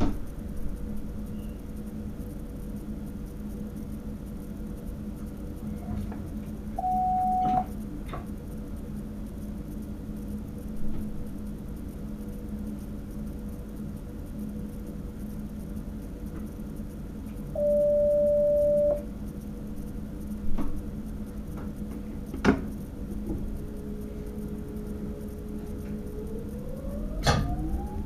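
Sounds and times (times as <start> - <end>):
train cab hum: 0.0 - 28.0
steady beep: 6.8 - 7.7, 17.6 - 19.0.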